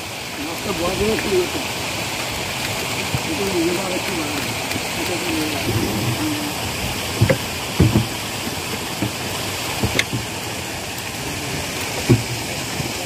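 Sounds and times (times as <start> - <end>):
steady rushing noise: 5.0 - 9.1
crates and metal weights knocking: 6.8 - 8.2.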